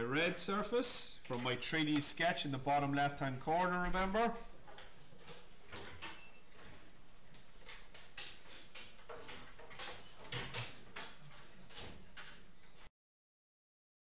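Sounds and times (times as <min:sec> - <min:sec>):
pencil scratching on paper: 0:02.3 - 0:12.9.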